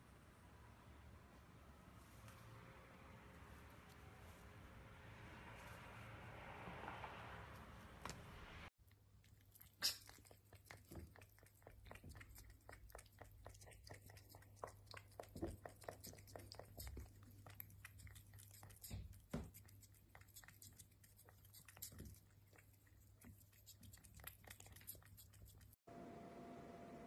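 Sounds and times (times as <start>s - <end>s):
cat lapping wet clicks: 8.8s - 25.8s.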